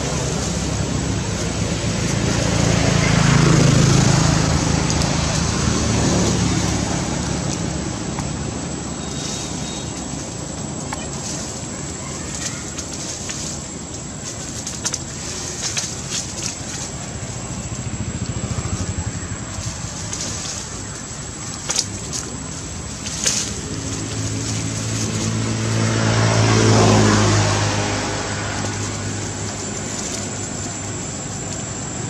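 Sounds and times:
vehicle passing: 0.0 - 32.0.

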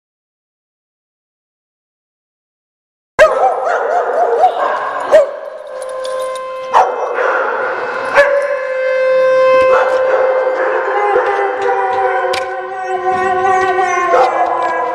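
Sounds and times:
dogs barking and howling: 3.2 - 14.9.

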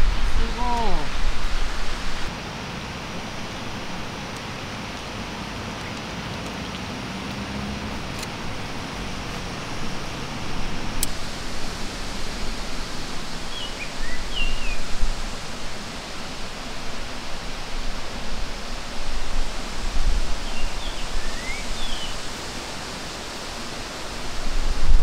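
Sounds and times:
wind buffeting microphone: 0.0 - 2.3, 7.5 - 22.8, 24.1 - 25.0
bird chirps: 13.5 - 14.9, 20.4 - 22.2.

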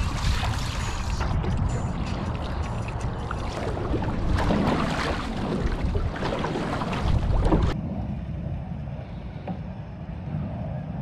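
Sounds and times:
water rushing along hull: 0.0 - 7.8
wind buffeting microphone: 0.0 - 11.0.

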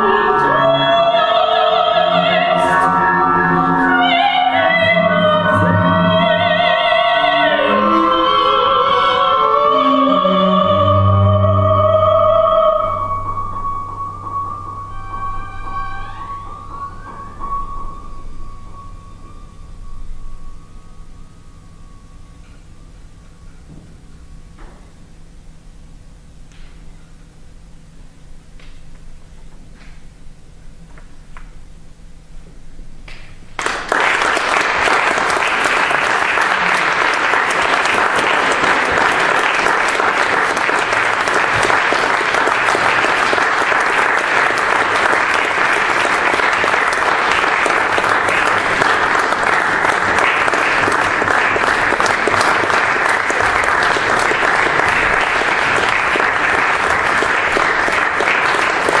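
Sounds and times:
audience applauding: 33.6 - 59.0.

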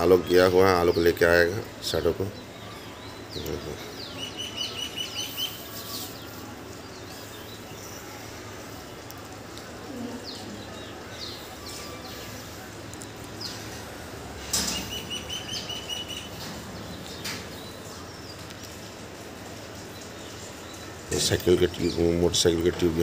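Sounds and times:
bird chirping: 0.0 - 23.0
downward-sliding bird calls: 13.4 - 17.9.

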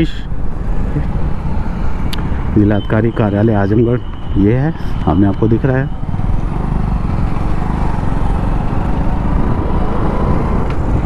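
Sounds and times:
motorcycle engine running: 5.4 - 11.0.

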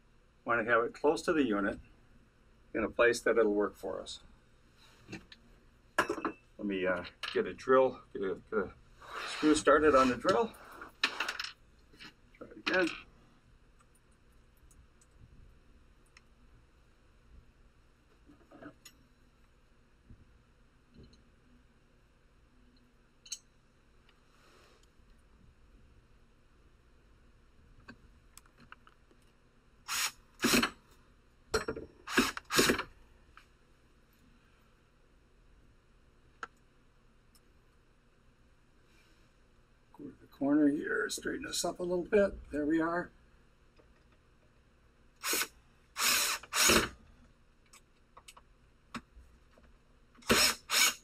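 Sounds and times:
cordless drill driving screw: 29.9 - 30.7, 32.1 - 32.9, 45.2 - 47.0, 50.2 - 51.0.

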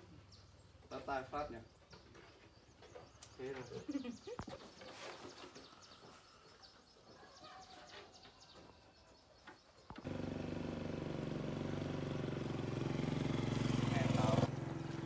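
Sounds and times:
faint birds chirping: 0.0 - 10.4, 12.5 - 15.0
small motorcycle engine running: 10.0 - 15.0.

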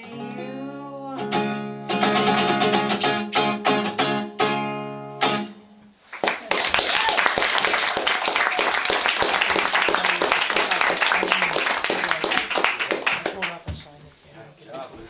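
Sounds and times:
acoustic guitar strumming: 0.0 - 5.9
audience applause: 6.1 - 13.6.

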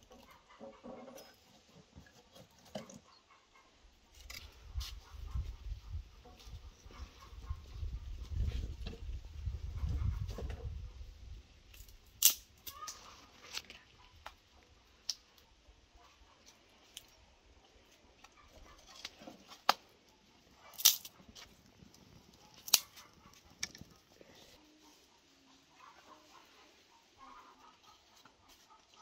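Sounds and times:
dry sticks cracking: 11.7 - 14.4, 20.7 - 24.0.

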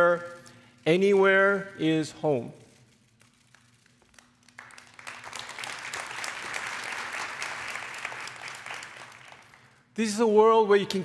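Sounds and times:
audience applauding: 4.1 - 9.8.

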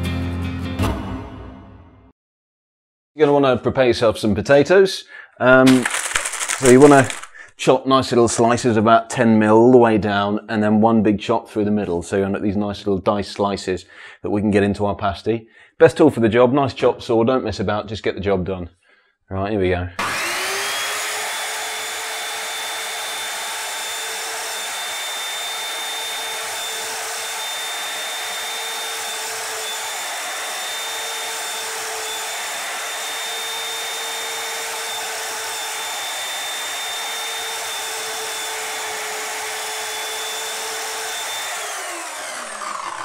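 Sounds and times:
electric chop saw whining: 5.7 - 7.4, 20.0 - 43.0.

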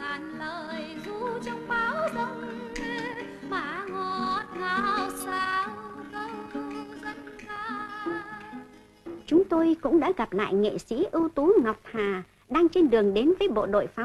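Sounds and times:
woman singing a lullaby: 0.0 - 9.7.

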